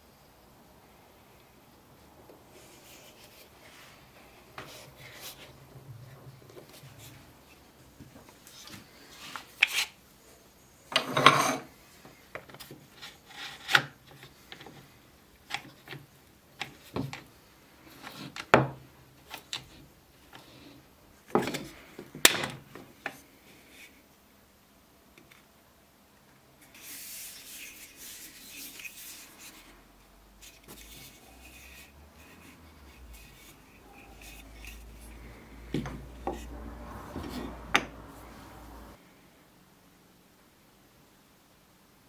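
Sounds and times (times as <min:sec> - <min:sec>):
wood rubbing: 0:30.4 - 0:39.0.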